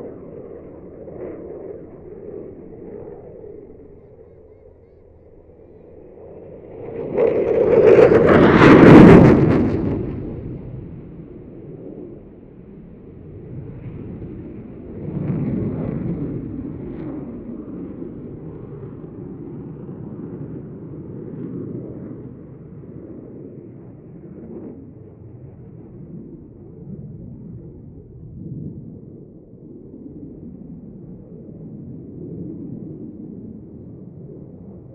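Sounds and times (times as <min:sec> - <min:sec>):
jet passing in afterburner: 0:00.0 - 0:34.9.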